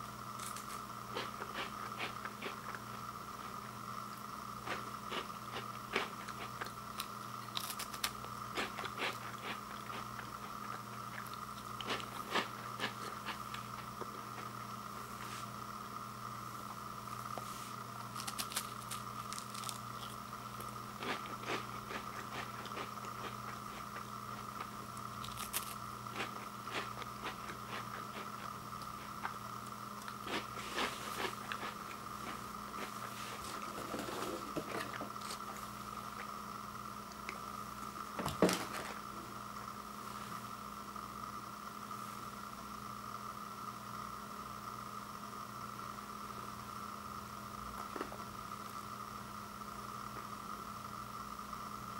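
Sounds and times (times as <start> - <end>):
crackers being chewed: 0.3 - 15.2, 16.6 - 36.4, 37.0 - 39.0.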